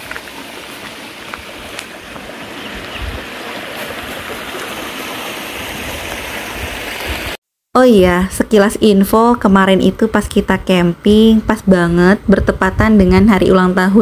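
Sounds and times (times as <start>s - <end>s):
stream water running: 0.0s - 7.4s.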